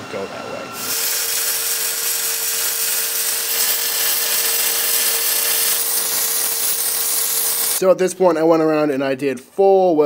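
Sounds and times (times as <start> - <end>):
welding arc crackling: 0.8 - 7.8.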